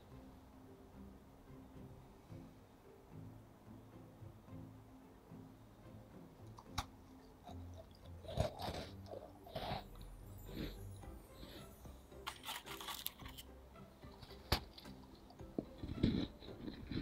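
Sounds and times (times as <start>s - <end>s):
cookie being bitten and chewed: 6.5s - 10.8s, 11.4s - 13.5s, 14.1s - 17.0s.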